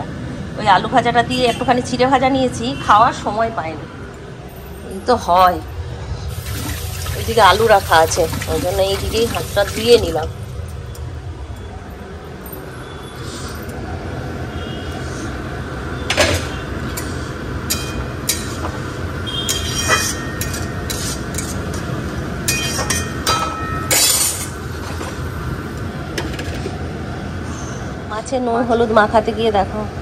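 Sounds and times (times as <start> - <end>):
metal spatula scraping a wok: 19.5 - 21.9.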